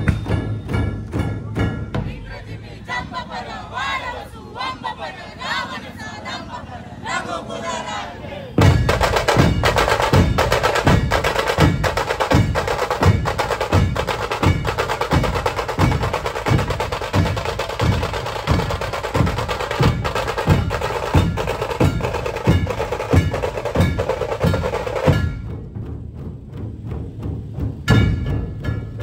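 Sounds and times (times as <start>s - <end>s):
barrel drums heavy beat: 0.0s - 2.6s, 8.6s - 29.0s
fast drum roll: 8.6s - 29.0s.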